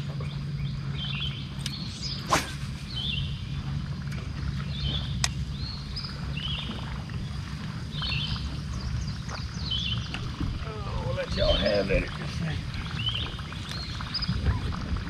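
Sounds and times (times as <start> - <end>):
steady low hum: 0.0 - 15.0
sharp click: 1.6 - 2.6
songbird warbling: 7.9 - 14.6.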